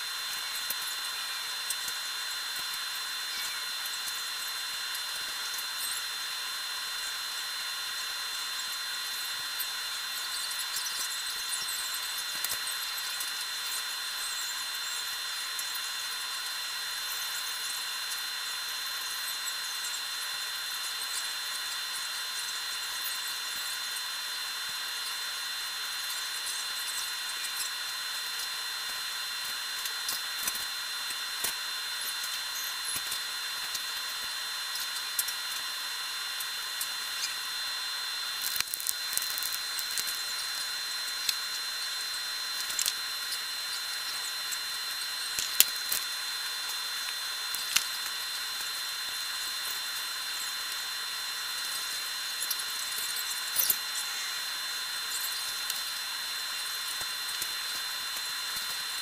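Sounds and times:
constant high whine: 0.0s - 59.0s
steady hiss: 0.0s - 59.0s
sharp clicks and crackles: 28.4s - 35.7s, 38.2s - 50.1s, 55.1s - 59.0s.

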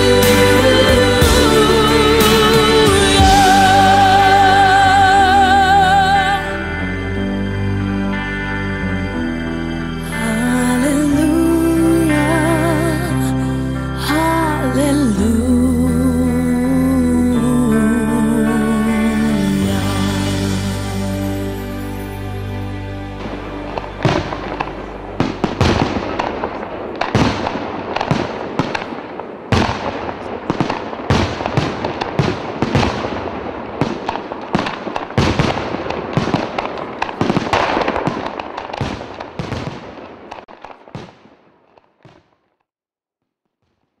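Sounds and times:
fireworks crackling: 23.2s - 42.5s
fireworks bangs: 23.8s - 42.5s.

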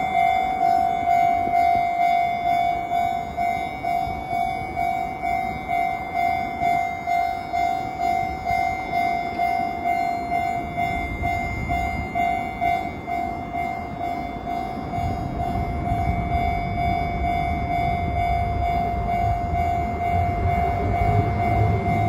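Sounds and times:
level crossing alarm dinging: 0.0s - 22.0s.

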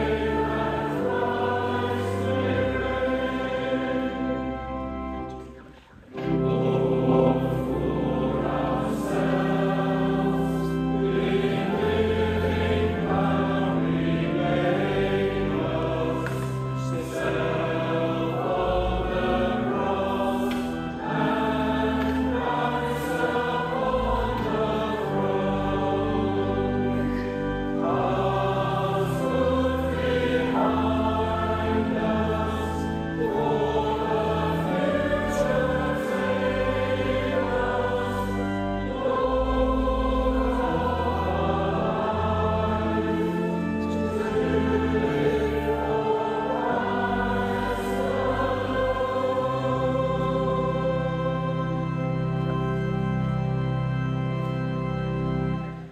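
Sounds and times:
choir singing church music: 0.0s - 55.9s.

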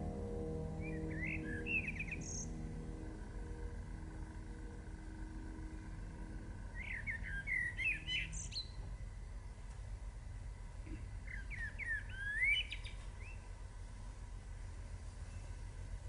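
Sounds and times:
low steady rumble: 0.0s - 16.0s
songbird singing whistled notes: 0.8s - 2.5s, 6.7s - 8.8s, 11.2s - 13.5s.

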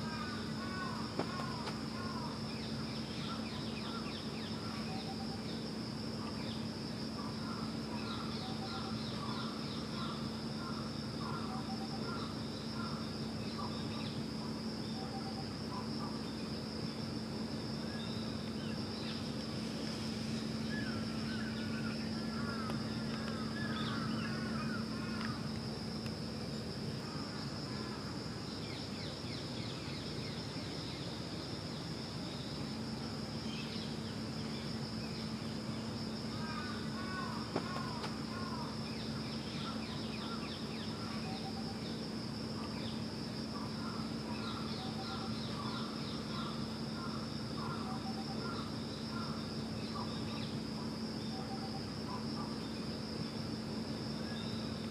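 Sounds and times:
high-pitched insect drone: 0.0s - 54.9s
low steady hum: 0.0s - 54.9s.

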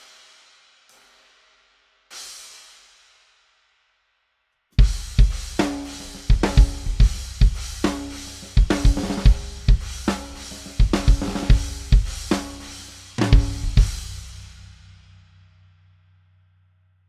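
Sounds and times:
cymbal crashes: 4.8s - 15.1s
drum kit beat: 4.8s - 15.1s.

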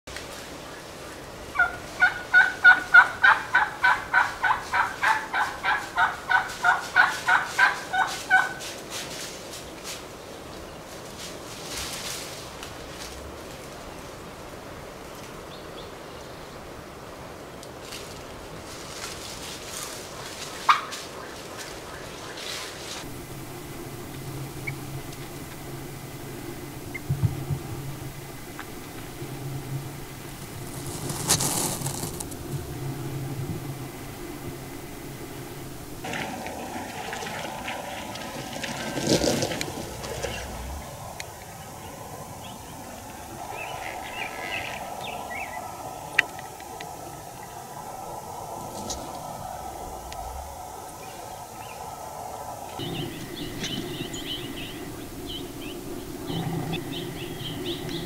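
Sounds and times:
low hiss: 0.1s - 58.0s
wild turkey yelping: 1.5s - 8.6s, 20.6s - 30.2s
steady low hum: 22.9s - 58.0s.

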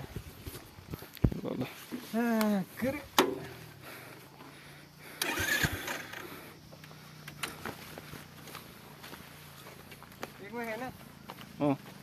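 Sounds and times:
motorcycle engine starting and idling: 3.1s - 9.8s.

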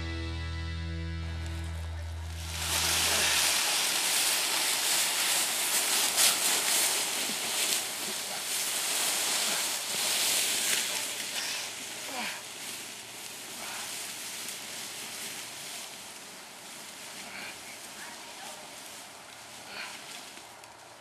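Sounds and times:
music: 0.0s - 2.6s
footsteps in leaves: 1.1s - 21.0s
body dragged across dry leaves: 1.4s - 21.0s.

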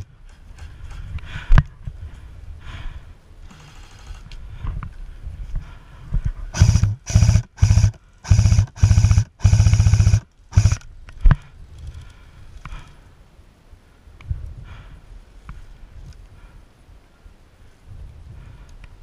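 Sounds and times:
electric rifle full-auto bursts: 6.6s - 10.8s.

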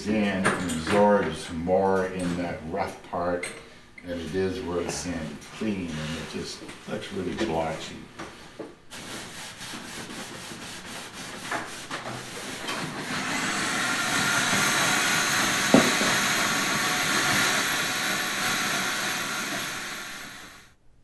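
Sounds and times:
sanding wood: 8.9s - 20.6s.

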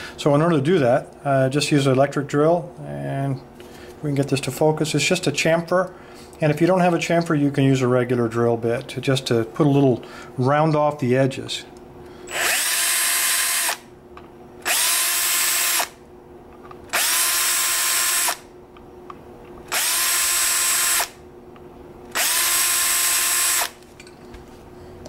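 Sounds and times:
electric drill whining: 12.3s - 13.9s, 14.6s - 16.0s, 16.9s - 18.5s, 19.7s - 21.2s, 22.1s - 23.8s.

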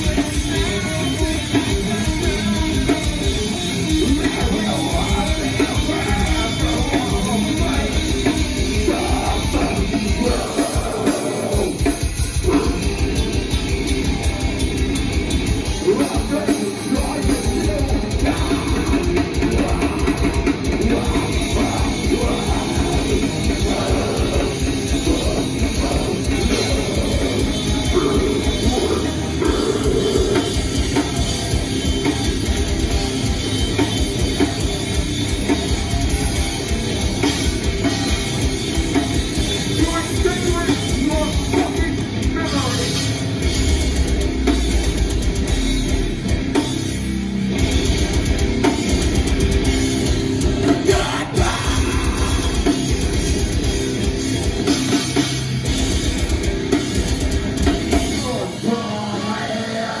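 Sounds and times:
distorted electric guitars: 0.0s - 60.0s
drum kit: 0.0s - 60.0s
person singing: 4.0s - 12.9s, 15.7s - 31.3s, 50.6s - 52.9s, 58.1s - 60.0s.

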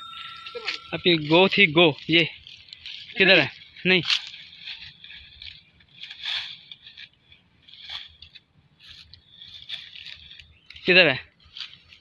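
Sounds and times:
dry grass and leaves crunching: 0.0s - 12.0s.

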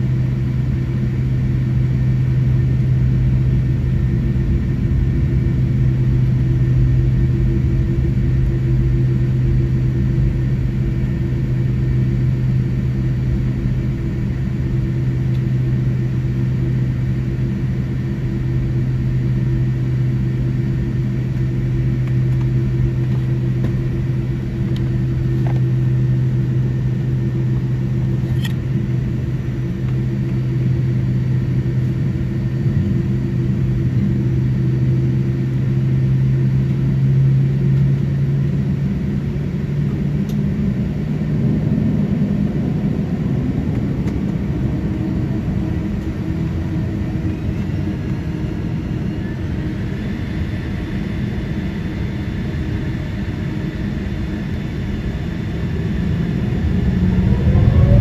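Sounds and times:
jet engines low hum and rumble: 0.0s - 58.0s
faint high whine: 52.4s - 58.0s.

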